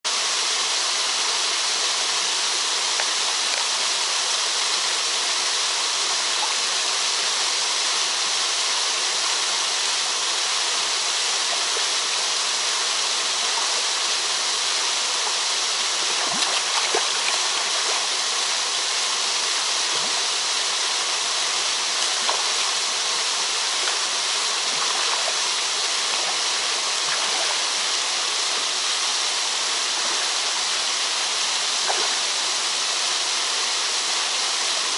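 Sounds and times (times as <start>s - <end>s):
waterfall pouring into pool: 0.1s - 34.9s
water splashes: 15.2s - 33.1s.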